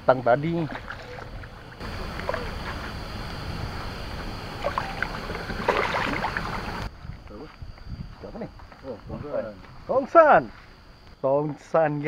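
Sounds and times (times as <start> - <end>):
water splashing and sloshing: 0.2 - 6.9.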